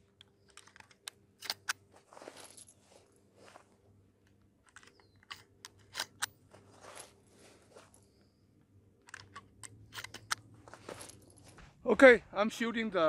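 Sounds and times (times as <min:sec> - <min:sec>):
cartridges clicking into rifle: 0:04.3 - 0:06.4, 0:09.0 - 0:10.4.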